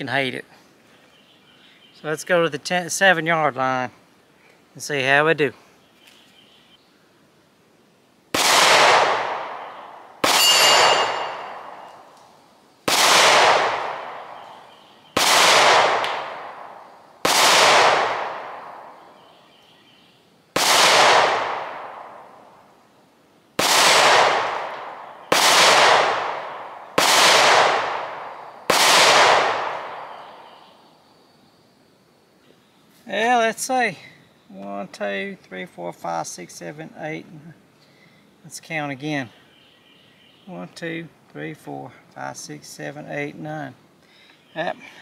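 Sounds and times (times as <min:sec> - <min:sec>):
pistol shots echoing: 0:08.3 - 0:12.2, 0:12.9 - 0:19.2, 0:20.6 - 0:22.5, 0:23.6 - 0:30.7
brief metallic ring: 0:10.4 - 0:11.5.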